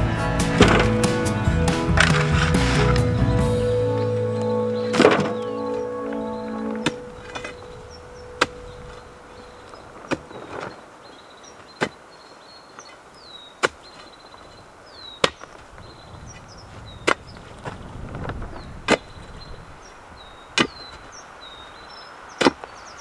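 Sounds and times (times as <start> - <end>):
digging tool striking stony soil: 0.5 - 1.1, 1.8 - 3.1, 10.0 - 10.8, 11.7 - 12.0, 13.6 - 14.1, 15.2 - 15.6, 20.6 - 20.9, 22.4 - 22.7.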